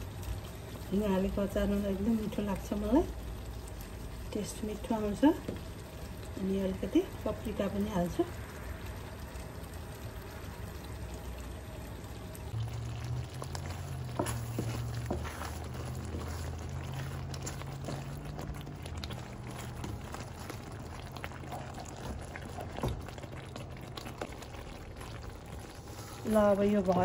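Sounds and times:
sauce simmering and bubbling: 0.0s - 27.0s
low hum: 8.2s - 26.2s
wooden spoon knocking a pan: 13.9s - 18.4s.

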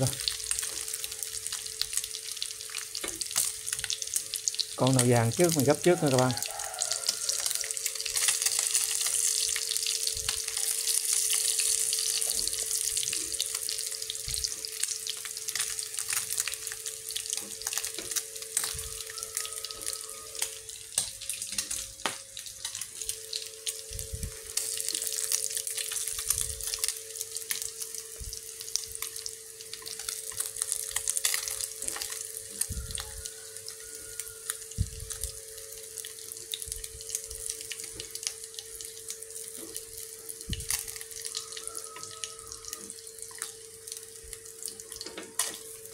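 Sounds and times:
fish sizzling in hot oil: 0.0s - 45.9s
steady hum: 19.8s - 33.7s.

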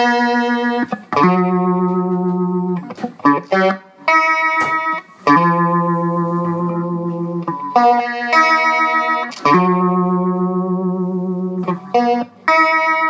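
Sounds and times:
electric guitar single notes: 0.0s - 13.0s.

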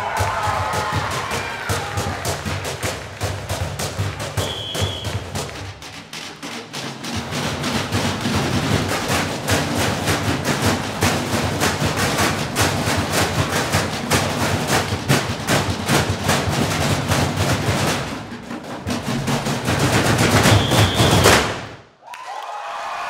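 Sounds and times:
applause: 0.0s - 5.2s, 22.0s - 23.0s
drumming on metal trash cans: 0.0s - 21.8s.

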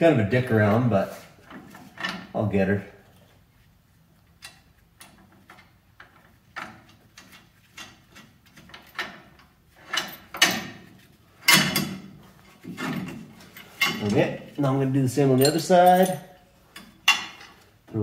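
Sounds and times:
metal clunks: 4.5s - 14.2s.

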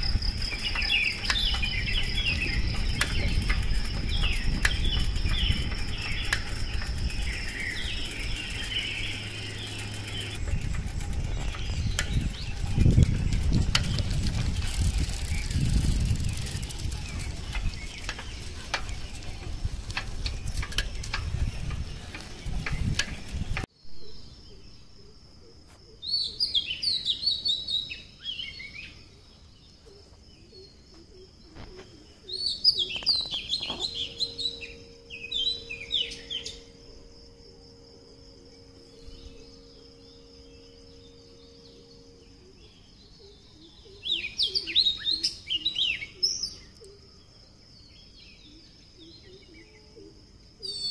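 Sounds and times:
songbirds chirping and singing: 0.0s - 25.2s, 25.8s - 50.9s
steady high tone: 33.4s - 44.3s.

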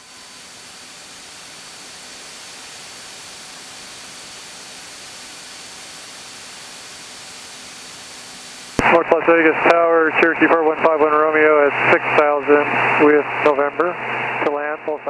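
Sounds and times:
faint high whine: 0.0s - 15.0s
intercom audio hiss: 8.6s - 15.0s.

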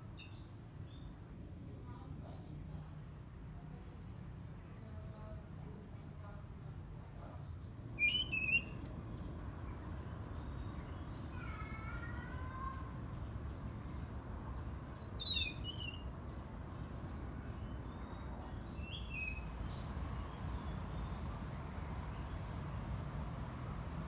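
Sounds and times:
low background rumble: 0.0s - 24.0s
bird whistled song: 7.4s - 8.8s, 15.0s - 16.1s, 18.1s - 19.8s.

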